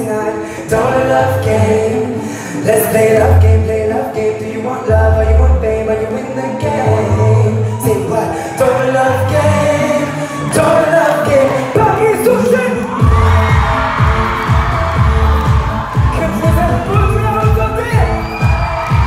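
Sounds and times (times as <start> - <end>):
person singing over pop backing track: 0.0 - 19.0
heavy kick drum beat: 13.0 - 19.0.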